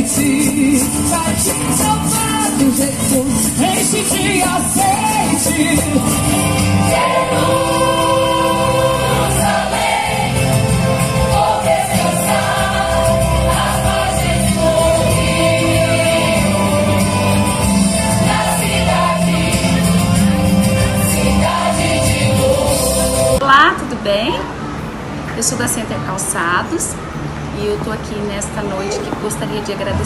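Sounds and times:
choir singing gospel song: 0:00.0 - 0:23.4
instrumental backing: 0:00.0 - 0:23.4.

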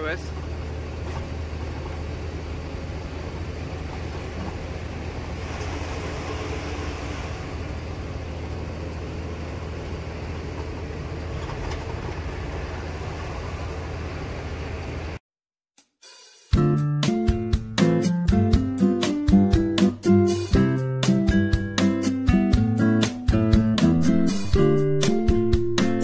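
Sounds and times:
road and tyre noise: 0:00.0 - 0:15.2
truck engine drone: 0:00.0 - 0:15.2.

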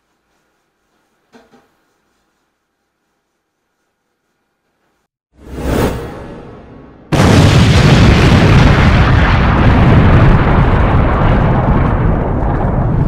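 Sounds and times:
explosion blast with deep rumble: 0:07.0 - 0:13.0.

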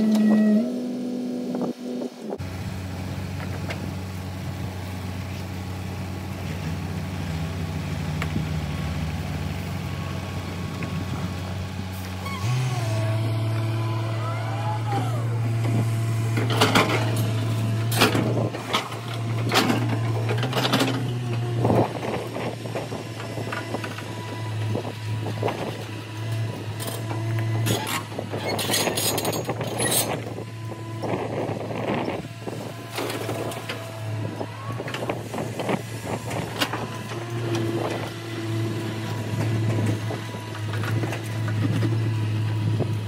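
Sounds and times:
steady whine: 0:00.0 - 0:02.4
excavator diesel engine running: 0:00.0 - 0:43.0.

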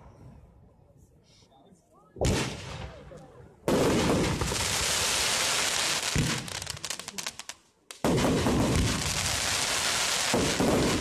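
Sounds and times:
firework bang: 0:02.2 - 0:03.0
rapid firework crackling: 0:03.7 - 0:11.0.

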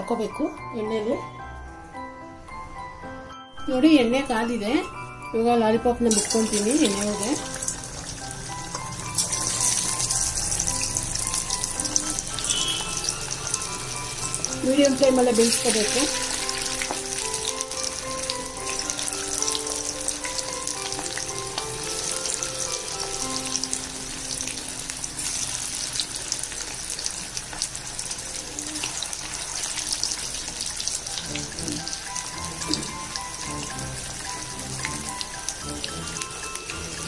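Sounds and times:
food deep-frying in oil: 0:06.0 - 0:37.0.

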